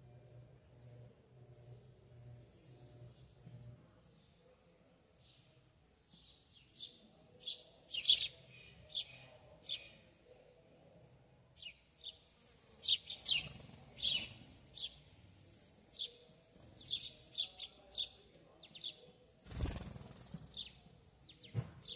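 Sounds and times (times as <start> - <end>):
bird chirping: 6.1 - 10.1, 11.6 - 21.9.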